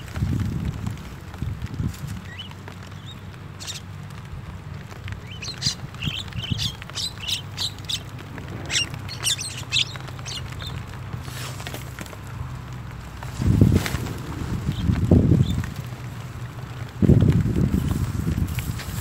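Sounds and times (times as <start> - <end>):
birds making sharp calls: 2.2 - 3.9, 4.9 - 11.8.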